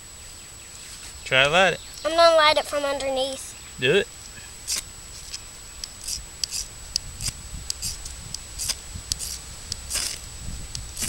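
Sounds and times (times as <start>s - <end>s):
striker scraping ferrocerium rod: 4.7s - 10.2s.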